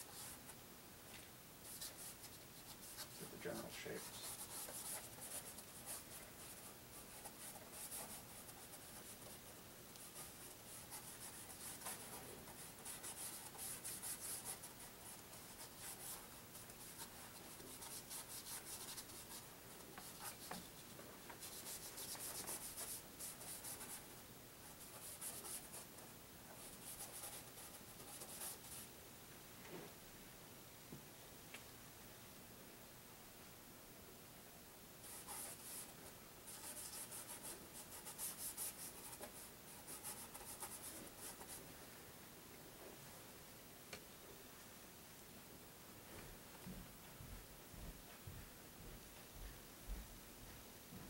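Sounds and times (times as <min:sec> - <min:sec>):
paintbrush scrubbing paper: 0:01.7 - 0:09.4, 0:10.0 - 0:19.4, 0:20.0 - 0:24.1, 0:35.1 - 0:41.6.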